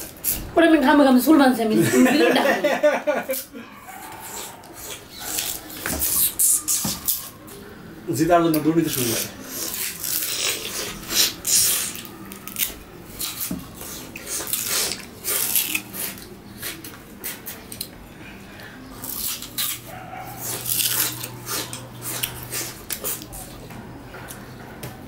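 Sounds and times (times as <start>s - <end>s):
chewing and tearing sugarcane: 0.0s - 0.5s, 3.3s - 7.6s, 8.4s - 18.0s, 18.6s - 24.6s.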